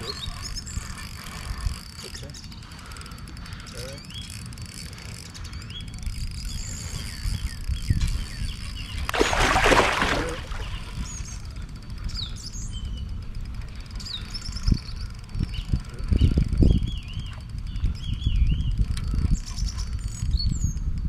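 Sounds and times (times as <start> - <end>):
songbirds chirping: 0.0 - 9.4, 10.0 - 20.9
fish splashing water: 9.1 - 10.8.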